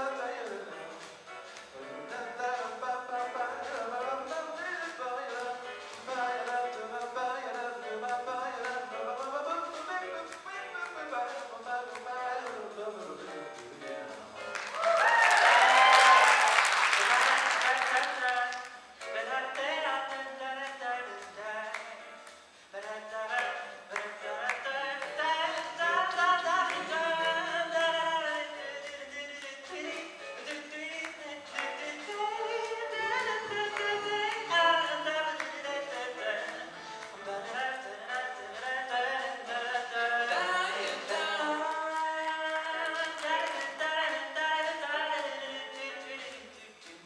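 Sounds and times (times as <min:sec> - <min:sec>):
male vocal quartet singing: 0:22.8 - 0:47.0.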